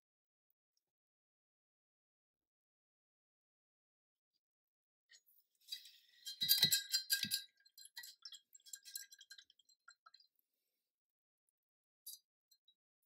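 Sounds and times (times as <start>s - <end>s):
painting supplies clinking and rattling: 5.6s - 10.3s.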